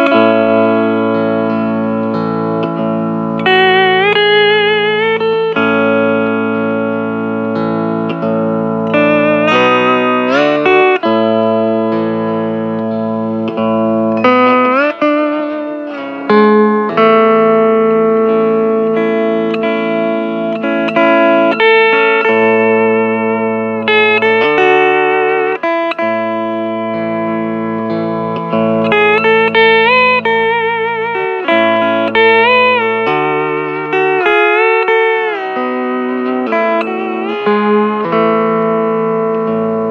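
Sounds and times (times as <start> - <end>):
steel guitar slow melody: 0.0 - 39.9
backing accompaniment with bass: 16.2 - 39.9.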